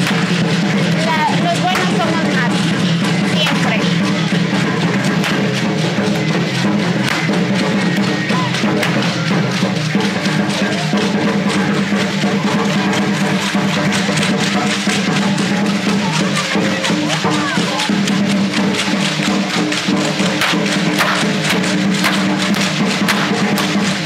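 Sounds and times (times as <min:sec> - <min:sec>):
loud music with drums: 0:00.0 - 0:24.0
sharp clicking percussion: 0:00.0 - 0:24.0.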